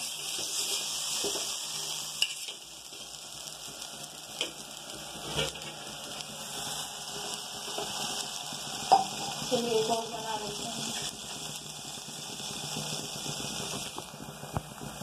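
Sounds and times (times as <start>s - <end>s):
oil sizzling on hot pan: 0.0s - 15.0s.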